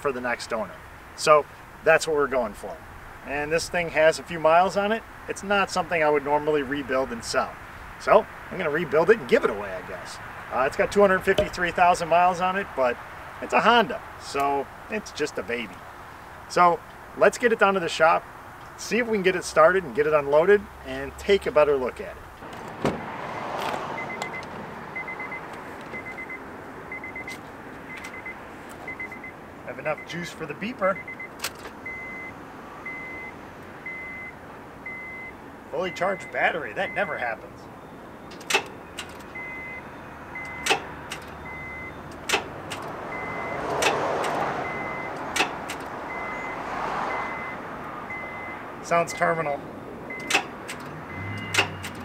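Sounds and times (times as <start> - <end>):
starter clunks: 11.2 - 11.8, 22.4 - 24.6, 38.2 - 39.7, 40.4 - 46.0, 50.1 - 52.0
quick high warning beeps: 23.4 - 25.4, 26.0 - 29.4, 33.9 - 37.1, 38.6 - 40.8, 41.4 - 42.0, 43.1 - 43.7, 46.1 - 48.6
door chime beeping: 26.0 - 29.3.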